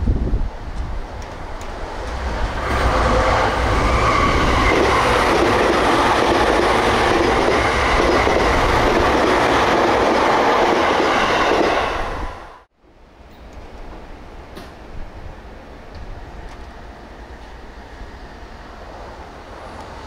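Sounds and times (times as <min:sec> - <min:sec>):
train wheels rumbling on rails: 0:00.0 - 0:12.7
faint train whine: 0:11.4 - 0:20.0.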